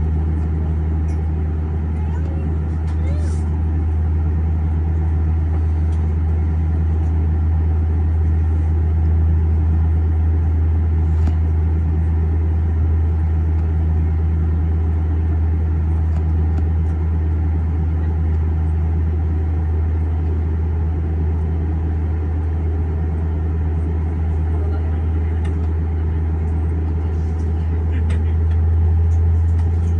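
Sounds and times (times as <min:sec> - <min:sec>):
aircraft cabin drone: 0:00.0 - 0:29.9.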